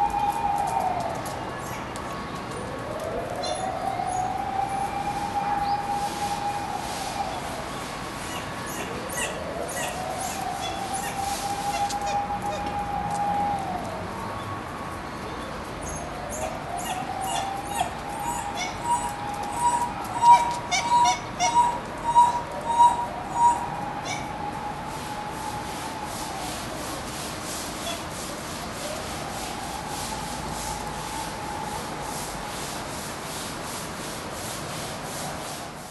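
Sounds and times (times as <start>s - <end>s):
distant siren wailing: 0.0s - 33.8s
dholes whining: 18.2s - 24.4s
steady hiss: 24.5s - 35.9s.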